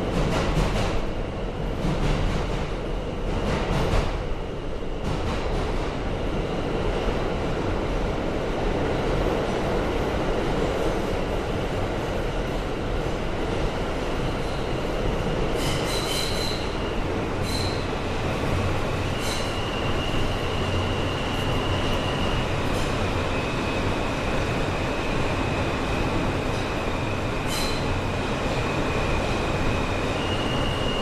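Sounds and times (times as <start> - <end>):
train clacks: 0.0 - 4.4, 5.0 - 6.0
subway train rumbling on rails: 0.0 - 31.0.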